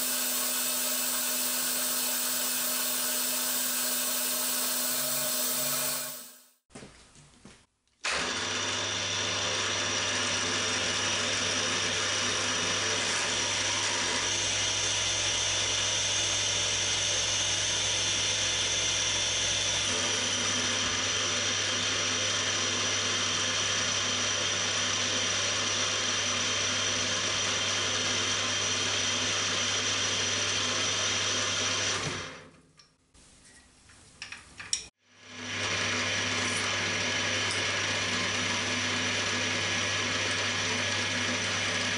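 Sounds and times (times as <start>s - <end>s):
drill bit drilling aluminium: 0.0s - 6.4s, 8.1s - 32.0s
milling machine motor humming: 0.0s - 6.4s.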